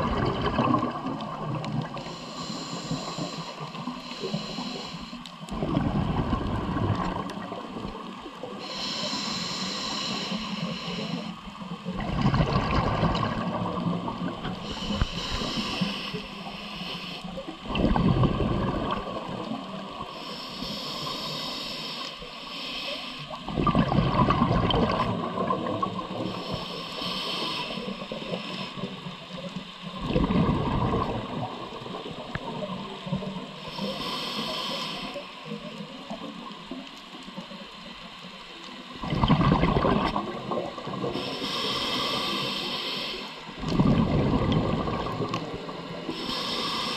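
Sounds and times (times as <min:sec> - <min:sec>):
exhaled bubbles rumbling: 0:00.0 - 0:02.2, 0:05.5 - 0:08.6, 0:11.6 - 0:16.3, 0:17.4 - 0:20.1, 0:23.4 - 0:26.6, 0:29.9 - 0:33.5, 0:38.8 - 0:41.3, 0:43.6 - 0:46.2
regulator inhale hiss: 0:01.8 - 0:05.6, 0:07.5 - 0:11.9, 0:13.7 - 0:23.5, 0:25.0 - 0:30.1, 0:31.0 - 0:38.8, 0:40.9 - 0:43.8, 0:45.2 - 0:46.9.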